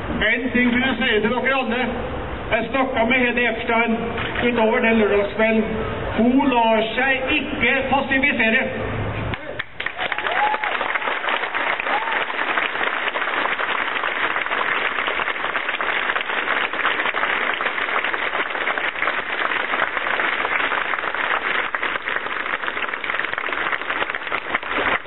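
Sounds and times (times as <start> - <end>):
crowd applauding: 9.3 - 25.0.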